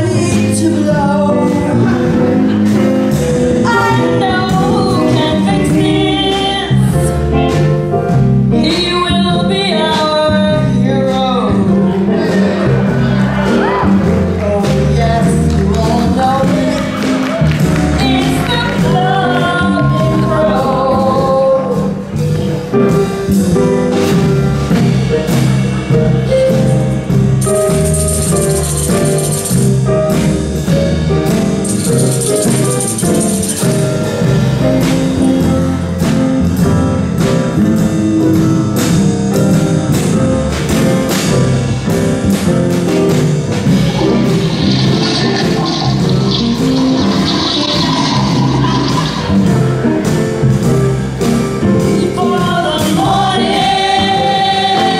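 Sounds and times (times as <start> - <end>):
music with steady beat and singing: 0.0 - 54.9
high jingle: 26.5 - 29.9, 31.6 - 33.9.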